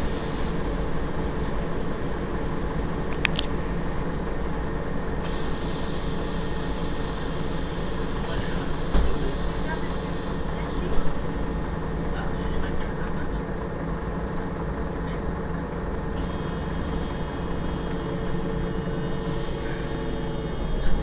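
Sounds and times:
faint high whine: 0:00.0 - 0:01.2, 0:05.1 - 0:11.5, 0:16.2 - 0:21.0
bus engine idling: 0:00.0 - 0:21.0.

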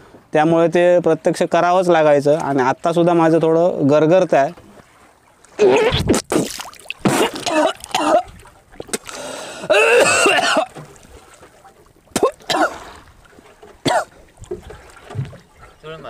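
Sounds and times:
vomit splashing into water: 0:05.5 - 0:09.2
man retching and vomiting: 0:05.6 - 0:10.8, 0:12.1 - 0:12.8, 0:13.8 - 0:14.1
man gasping: 0:09.1 - 0:09.8.

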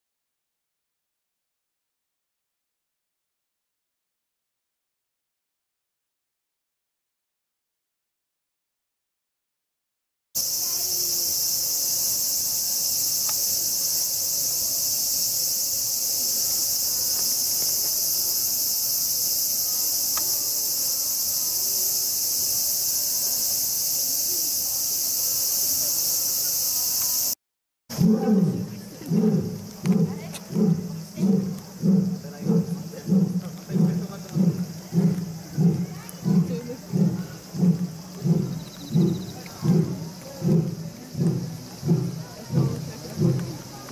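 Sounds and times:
high-pitched insect chorus: 0:10.4 - 0:43.9
animal calling in low pulses: 0:27.9 - 0:43.6.

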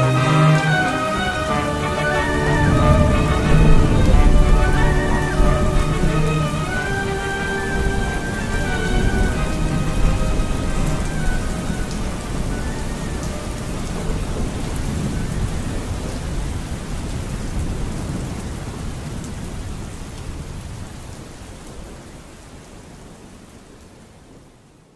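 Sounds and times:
thunder rumbling: 0:00.0 - 0:19.7
steady rain: 0:00.0 - 0:24.9.

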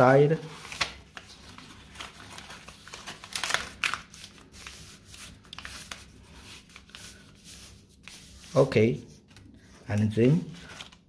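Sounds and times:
paper rustling and crinkling: 0:00.0 - 0:11.0
paper scratches: 0:04.5 - 0:09.8.

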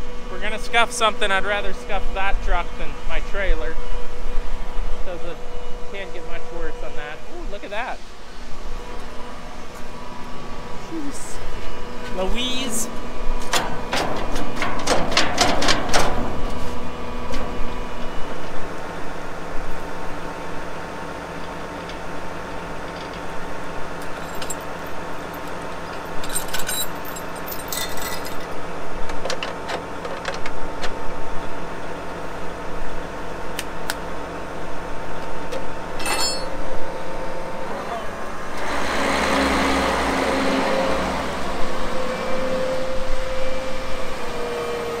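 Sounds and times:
metal clinking and jingling: 0:24.2 - 0:28.5, 0:36.0 - 0:36.6.

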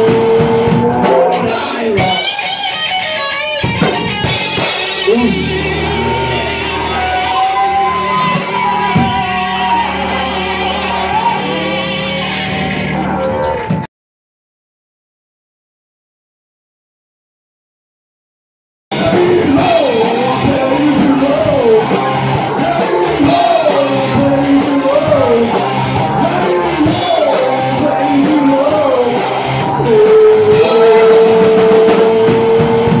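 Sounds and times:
electric guitar lead line: 0:00.0 - 0:13.8, 0:18.9 - 0:33.0
rock band playing: 0:00.0 - 0:13.9, 0:18.9 - 0:33.0.

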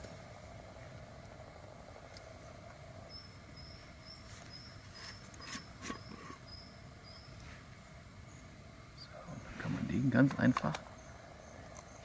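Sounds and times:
small bird chirping: 0:02.4 - 0:07.5, 0:10.8 - 0:12.0.

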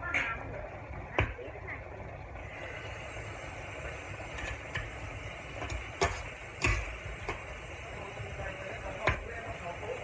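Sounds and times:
food sizzling: 0:00.0 - 0:10.0
metal spatula scraping a wok: 0:04.3 - 0:05.0, 0:05.6 - 0:07.4
spatula clanking on wok: 0:04.3 - 0:05.0, 0:05.6 - 0:07.5.

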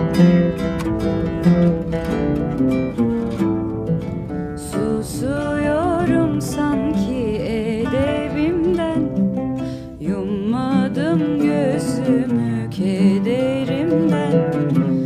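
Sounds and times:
acoustic guitar accompaniment: 0:00.0 - 0:15.0
sliding wavering melody line: 0:00.0 - 0:15.0.

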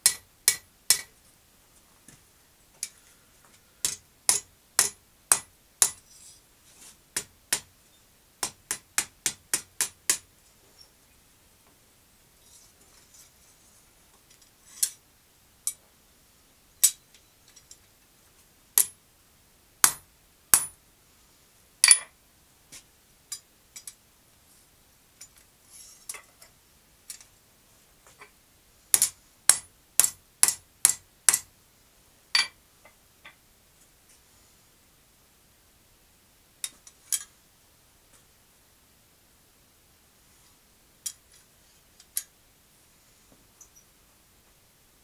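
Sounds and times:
hammer striking metal on anvil: 0:00.0 - 0:01.1, 0:04.3 - 0:06.0, 0:19.8 - 0:20.8.

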